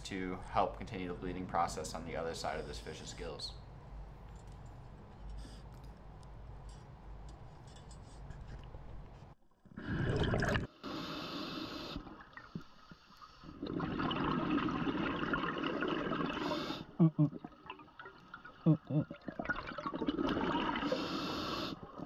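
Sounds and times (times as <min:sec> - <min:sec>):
low hum with faint ticks: 0:00.0 - 0:09.7
underwater bubbles rushing: 0:09.8 - 0:10.7, 0:13.4 - 0:16.5, 0:17.3 - 0:21.0.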